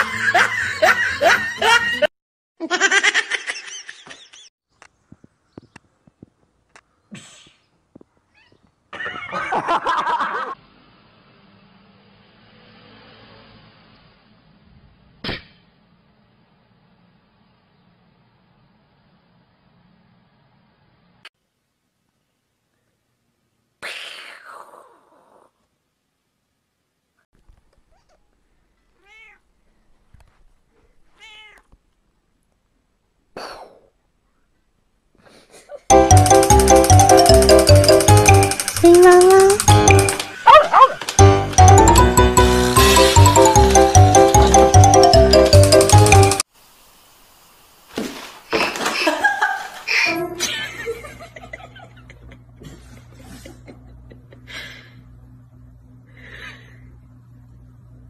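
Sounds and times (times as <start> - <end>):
cat meowing: 27.9 - 29.5, 31.1 - 31.7
cat meowing loudly: 29.0 - 29.4, 31.2 - 31.7.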